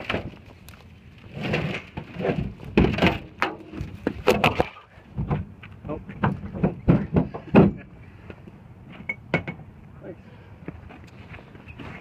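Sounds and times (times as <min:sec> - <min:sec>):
metal scraping and rattling: 0:01.2 - 0:04.7.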